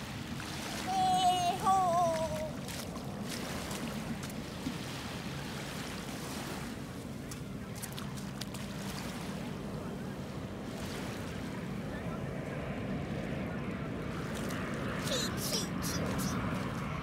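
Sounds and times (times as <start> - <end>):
distant airliner rumble: 0.0 - 17.0
wind and water hiss: 0.0 - 17.0.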